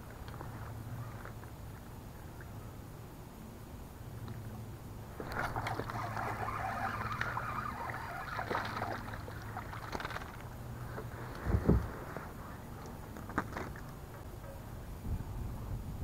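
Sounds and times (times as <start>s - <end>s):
fish splashing at surface: 5.2s - 10.4s.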